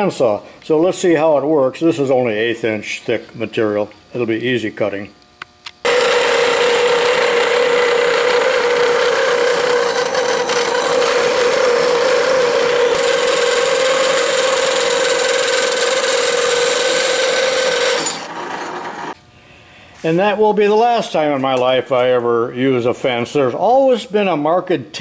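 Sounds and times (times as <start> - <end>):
bandsaw cutting metal plate: 5.8 - 19.2.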